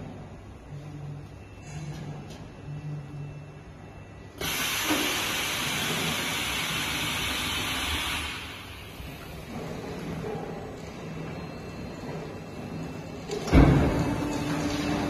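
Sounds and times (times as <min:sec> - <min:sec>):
machine humming: 0:00.0 - 0:15.0
loud steady hiss: 0:04.4 - 0:09.1.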